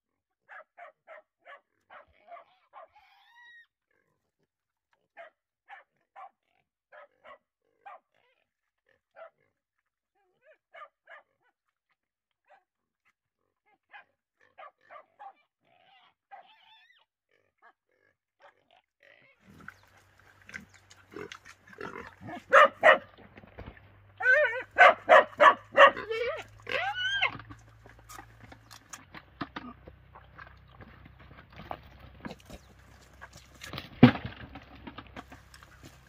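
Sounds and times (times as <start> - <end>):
piglets giving faint calls: 2.4 - 3.7, 18.7 - 23.0, 24.2 - 29.0.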